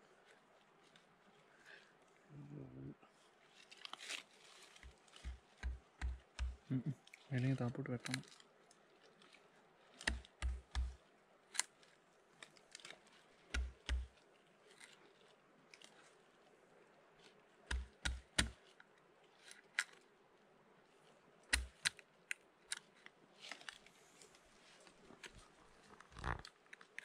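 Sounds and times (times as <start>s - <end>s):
knife chopping with dull thuds: 5.2s - 6.6s, 10.0s - 11.0s, 13.6s - 14.1s, 17.7s - 18.6s, 21.5s - 21.8s
sharp snaps and clicks: 8.0s - 9.3s, 10.0s - 11.8s, 12.4s - 15.0s, 17.7s - 18.8s, 21.5s - 23.8s.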